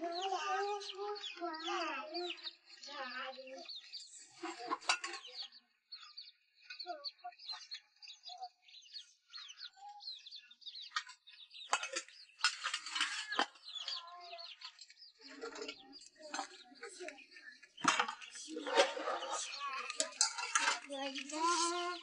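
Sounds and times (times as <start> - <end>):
small birds chirping: 0.0 - 22.0
sharp knocks and clatters: 17.8 - 22.0.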